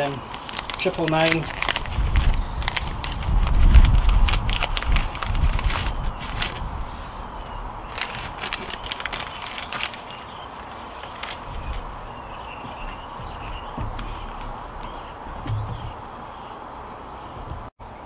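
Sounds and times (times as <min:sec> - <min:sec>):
coffee bag crinkling: 0:00.0 - 0:06.8, 0:07.8 - 0:14.2.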